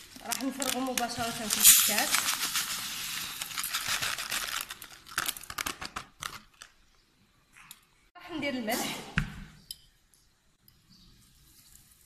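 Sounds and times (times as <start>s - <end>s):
plastic bag crinkling: 0.0s - 6.8s
pasta grains pouring into metal basket: 0.3s - 4.0s.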